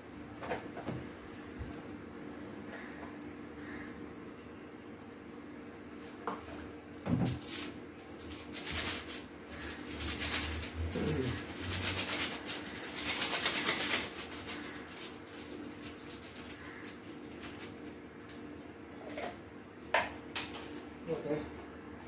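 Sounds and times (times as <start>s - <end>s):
crinkling packaging being opened: 7.3s - 18.7s
pigeon cooing: 10.6s - 14.9s.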